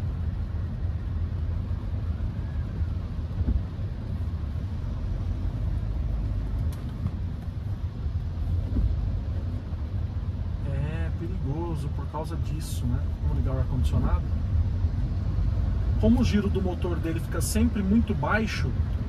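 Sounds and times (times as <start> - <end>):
car cabin rumble: 0.0 - 15.4
faint siren: 0.1 - 4.0.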